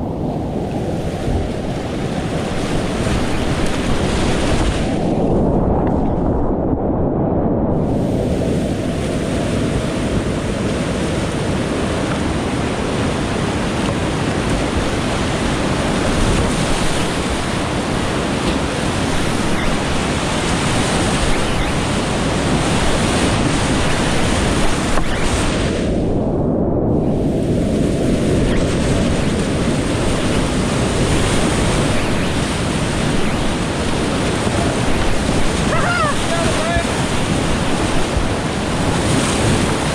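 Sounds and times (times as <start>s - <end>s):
creek whitewater rushing: 28.2s - 39.9s.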